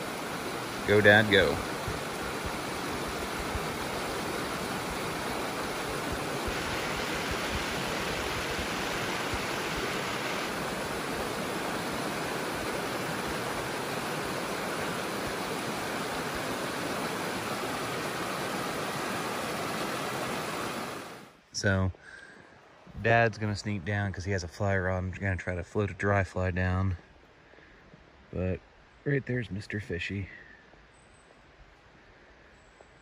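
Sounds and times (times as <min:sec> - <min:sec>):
river water rushing over rocks: 0:00.0 - 0:21.4.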